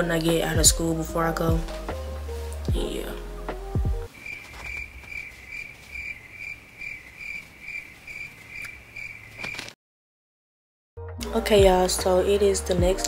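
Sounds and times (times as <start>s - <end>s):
cricket chirping: 4.1s - 9.7s.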